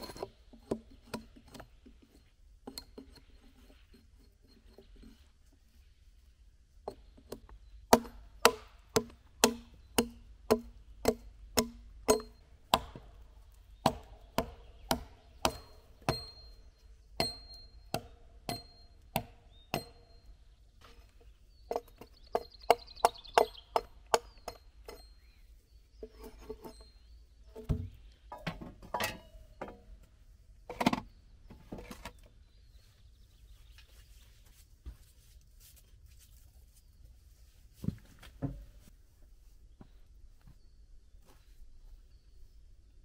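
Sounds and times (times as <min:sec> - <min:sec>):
axe chopping into log: 0:07.9 - 0:13.2, 0:13.8 - 0:16.3.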